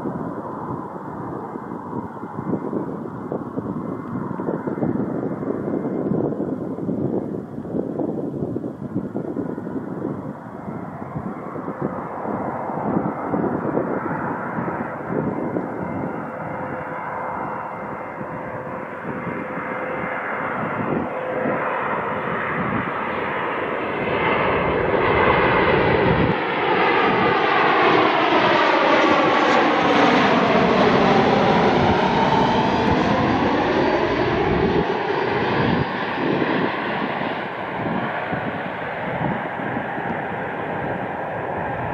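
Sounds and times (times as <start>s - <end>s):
jet airliner passing low: 0.0s - 41.9s
sweeping engine whine: 0.0s - 41.9s.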